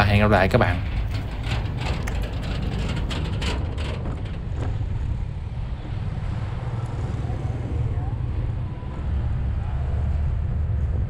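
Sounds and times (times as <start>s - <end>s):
wheels clattering over steel plates: 0.0s - 6.4s
wind rumble on microphone: 0.0s - 11.0s.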